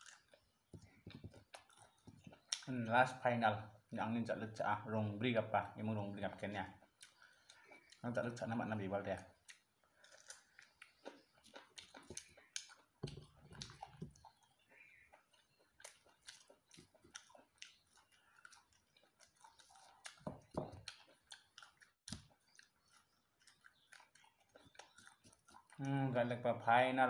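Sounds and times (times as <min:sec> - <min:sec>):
person chewing crisp greens: 0:00.0 - 0:02.8, 0:06.4 - 0:26.2.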